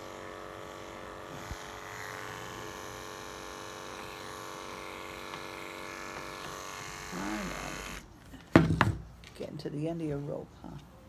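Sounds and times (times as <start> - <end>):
electric clippers humming: 0.0 - 8.1.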